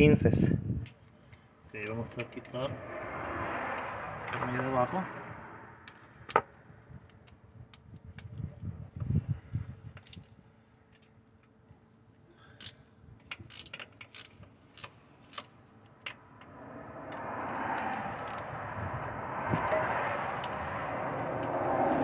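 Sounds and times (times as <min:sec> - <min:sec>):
steady rushing noise: 0:02.0 - 0:06.0, 0:16.2 - 0:22.0.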